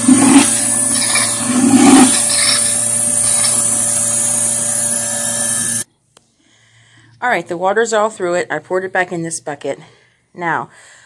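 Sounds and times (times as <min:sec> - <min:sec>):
loud slurp: 0:00.0 - 0:04.8
milking machine sucking water: 0:00.0 - 0:05.8.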